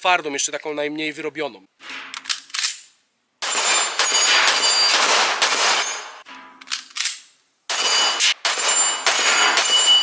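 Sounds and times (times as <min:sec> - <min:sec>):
rapid pistol shots: 0:03.4 - 0:06.2, 0:07.7 - 0:10.0.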